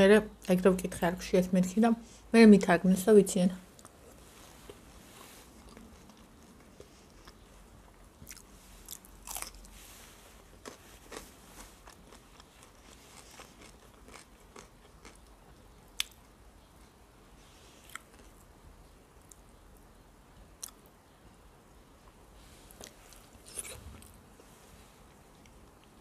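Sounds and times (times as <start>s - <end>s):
person chewing food: 3.7s - 16.3s, 17.7s - 18.5s, 22.7s - 24.2s.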